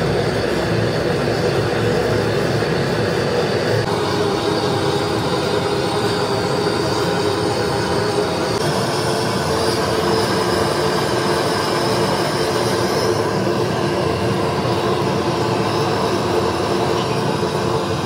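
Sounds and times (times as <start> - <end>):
blowtorch flame rushing: 0.0 - 18.0.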